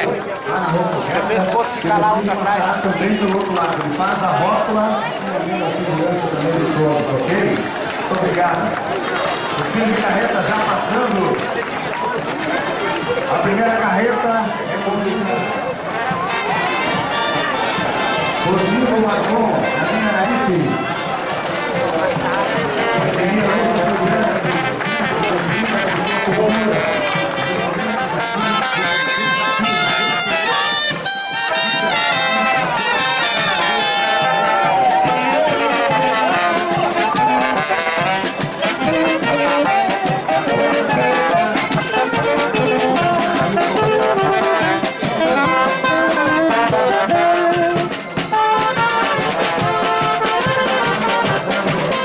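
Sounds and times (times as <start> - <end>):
marching brass band playing: 9.0 - 52.0
snare and bass drum beat: 28.3 - 52.0.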